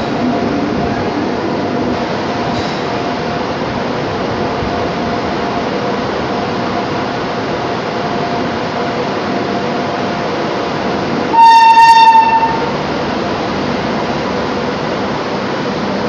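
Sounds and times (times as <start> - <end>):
train rolling slowly: 0.0 - 16.0
train horn blast: 11.3 - 12.8.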